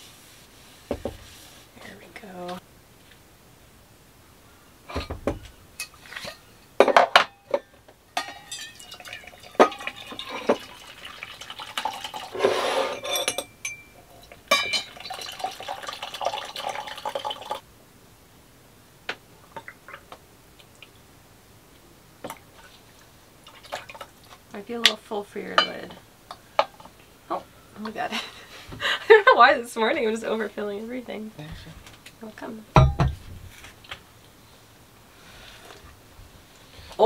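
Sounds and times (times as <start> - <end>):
mugs clinking on a counter: 4.9 - 10.6, 12.9 - 15.0, 32.8 - 33.2
coffee pouring into a mug: 8.5 - 12.6, 14.1 - 17.6.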